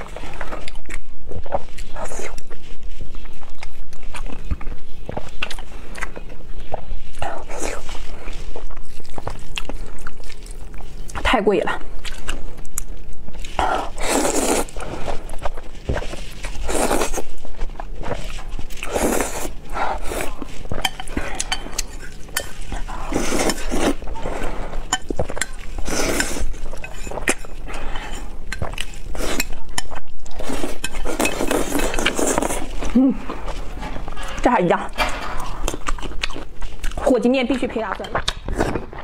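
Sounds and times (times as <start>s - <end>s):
slurping noodles: 13.6s - 15.3s.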